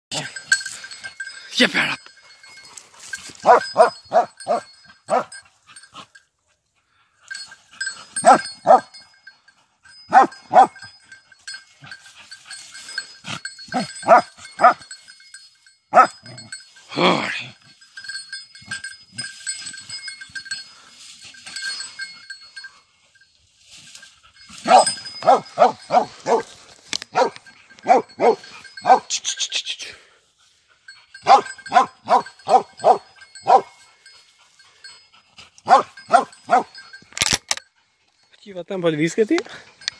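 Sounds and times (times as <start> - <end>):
faint bell-like ringing: 0.1 - 39.9
dog barking: 3.4 - 5.4, 8.2 - 8.9, 10.1 - 10.8, 13.7 - 14.8, 15.9 - 16.2, 24.6 - 26.5, 27.1 - 29.1, 31.2 - 33.8, 35.7 - 36.8.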